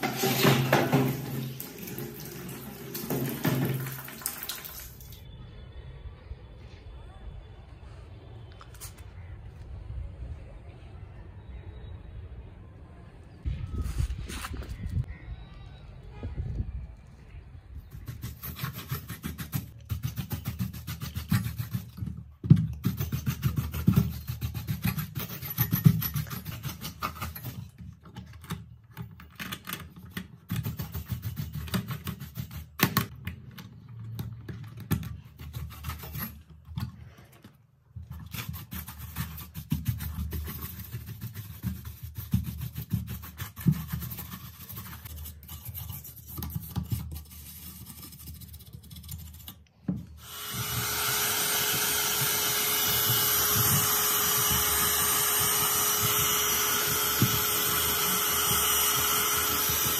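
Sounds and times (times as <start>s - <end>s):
brush scrubbing: 38.2s - 49.5s.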